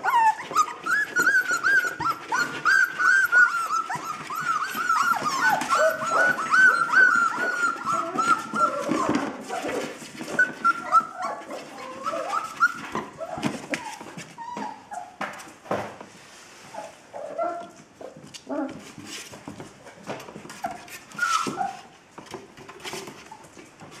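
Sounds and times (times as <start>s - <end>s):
puppies whimpering and squealing: 0.0s - 15.2s, 20.5s - 22.0s.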